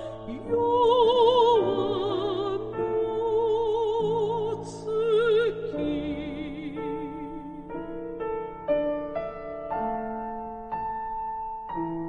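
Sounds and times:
woman singing operatically: 0.0s - 7.8s
piano accompaniment: 0.0s - 12.0s.

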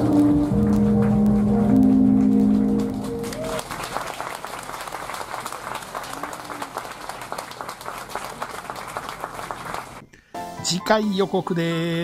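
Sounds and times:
music with held chords: 0.0s - 3.4s
audience applauding: 0.4s - 10.0s.

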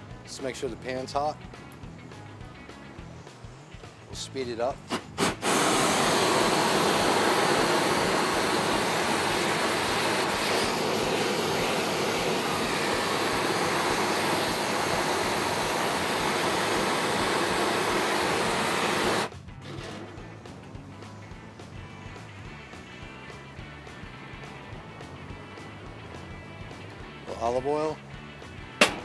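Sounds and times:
gas torch hissing: 1.0s - 19.3s.

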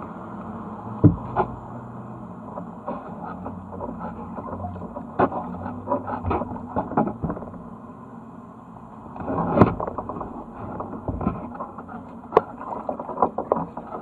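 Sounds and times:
paddle and kayak knocks and creaks: 1.0s - 1.6s, 2.5s - 7.7s, 9.2s - 14.0s
paddles splashing in water: 9.2s - 14.0s.

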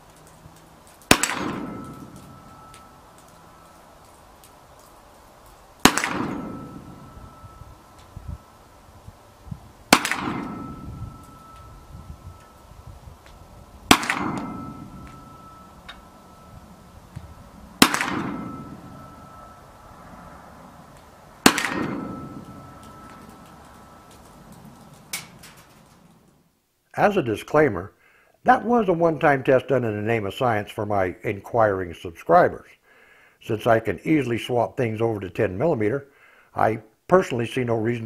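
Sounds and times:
rifle shots: 1.1s - 2.8s, 5.8s - 7.4s, 9.9s - 11.4s, 13.9s - 15.6s, 17.8s - 19.4s, 21.4s - 23.4s
steel target ringing: 1.1s - 3.8s, 5.8s - 8.5s, 9.9s - 12.8s, 13.9s - 20.3s, 21.4s - 25.7s.

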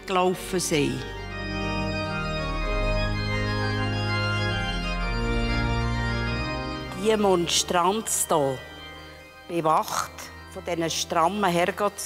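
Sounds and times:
organ chords: 0.0s - 12.0s.

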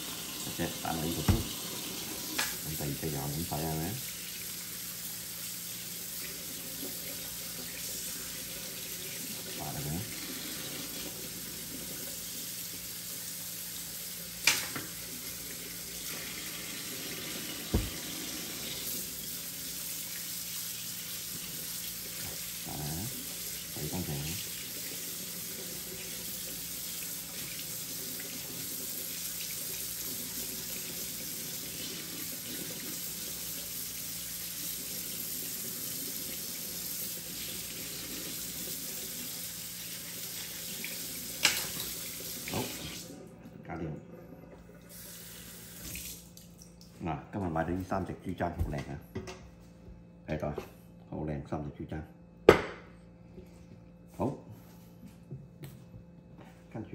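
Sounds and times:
tap water running into sink: 0.0s - 43.3s, 44.5s - 46.9s
sharp knocks: 17.7s - 18.0s.

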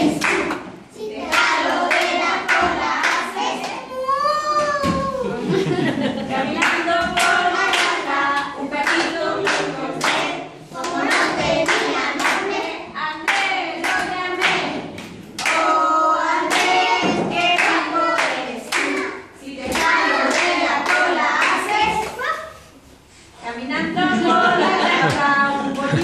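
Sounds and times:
children clapping: 0.0s - 3.8s, 6.6s - 15.8s, 16.4s - 22.2s
children singing together: 0.0s - 22.2s, 23.8s - 26.0s.

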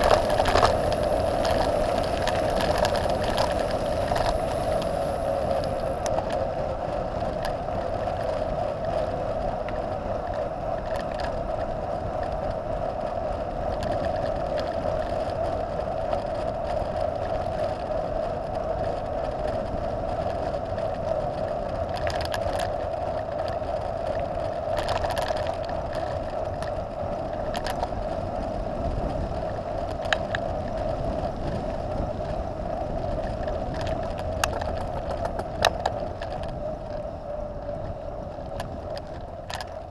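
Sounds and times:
sharp clicks from bumps: 0.0s - 6.5s, 21.3s - 28.2s, 29.8s - 31.7s, 32.8s - 37.0s, 38.4s - 39.9s
bike tyres humming on asphalt: 0.0s - 39.9s.

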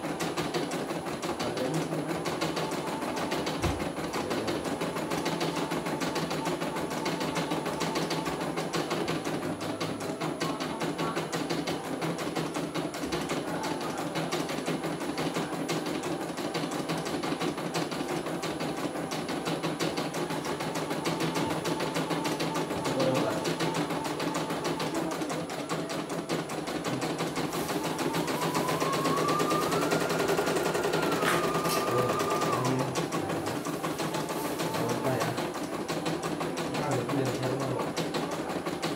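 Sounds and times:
embroidery machine needle clatter: 0.0s - 38.9s
rising held tone: 27.6s - 33.0s.

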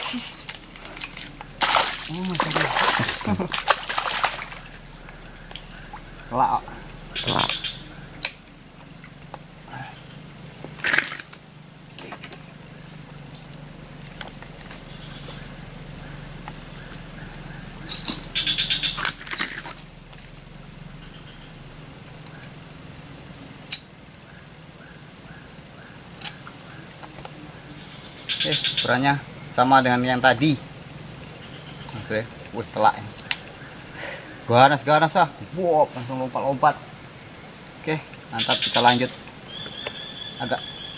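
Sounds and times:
sharp clicks and rattles: 0.0s - 9.8s, 10.4s - 12.6s, 14.0s - 23.0s
insects droning: 0.0s - 40.9s.

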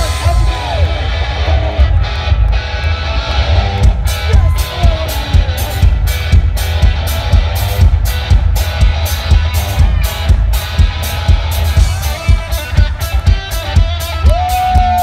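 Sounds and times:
distorted electric guitar: 0.0s - 15.0s
drum kit fast beat: 3.8s - 15.0s.

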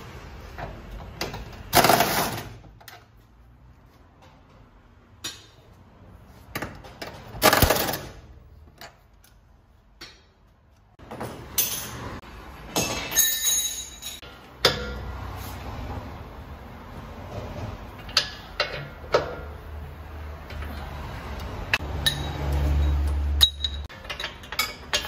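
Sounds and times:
metal tools clinking and knocking: 11.1s - 15.0s, 21.8s - 25.0s
metallic clatter and rattling: 22.0s - 25.0s.

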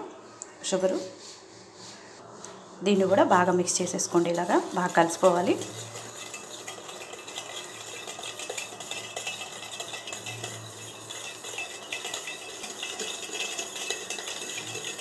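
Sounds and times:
whisk clinking in metal bowl: 3.4s - 15.0s.

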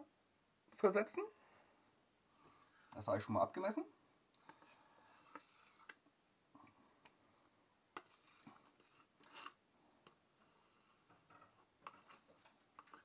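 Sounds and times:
spoon scraping: 4.4s - 6.0s, 8.0s - 9.6s, 10.4s - 13.0s.

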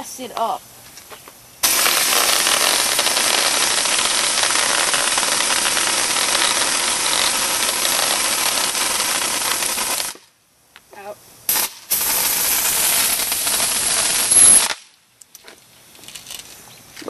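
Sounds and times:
bb gun firing: 1.6s - 10.2s.

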